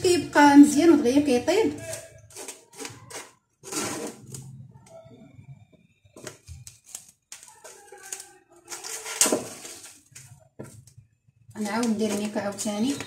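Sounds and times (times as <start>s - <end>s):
cling film crackling: 6.1s - 13.0s.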